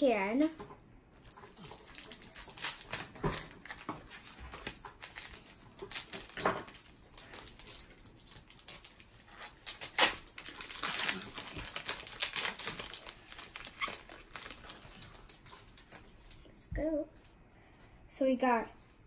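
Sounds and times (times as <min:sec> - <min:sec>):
foil wrapper crinkling and tearing: 0:01.2 - 0:16.4.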